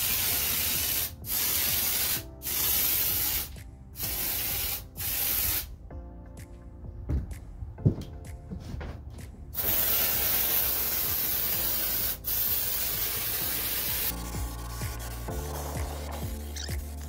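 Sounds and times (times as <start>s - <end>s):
sprayer nozzle hissing: 9.6s - 14.2s.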